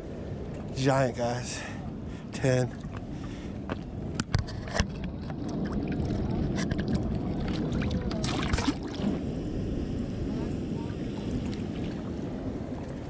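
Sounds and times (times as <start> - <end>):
water rushing through a spillway: 4.8 - 9.2.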